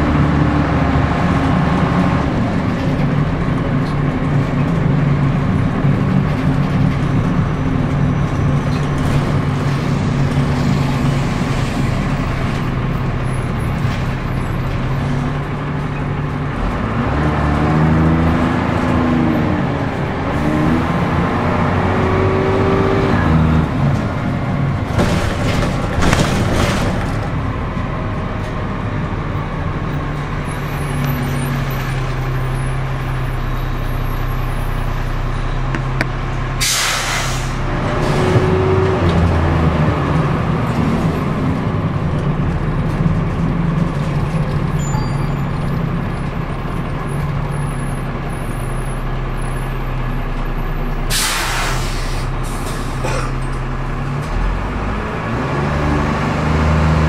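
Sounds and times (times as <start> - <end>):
bus diesel engine: 0.0 - 57.0
compressed air hissing: 36.6 - 37.6, 51.1 - 53.0.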